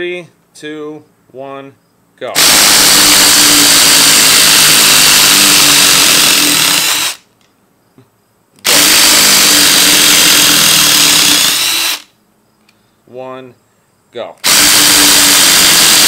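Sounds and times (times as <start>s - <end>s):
impact drivers driving screws: 2.4s - 7.2s, 8.6s - 12.1s, 14.4s - 16.0s.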